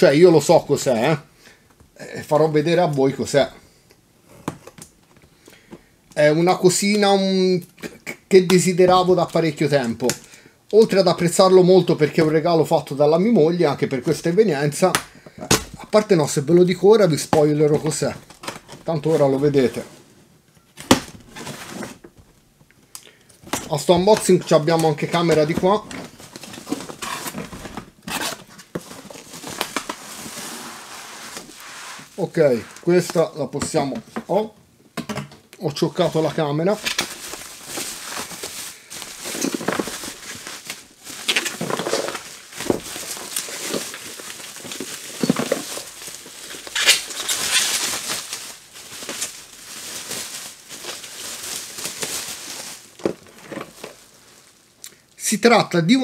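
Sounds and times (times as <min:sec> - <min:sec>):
bubble wrap crinkling: 0:23.7 - 0:33.4, 0:36.0 - 0:54.8
cardboard scraping: 0:25.4 - 0:33.1, 0:36.9 - 0:48.3.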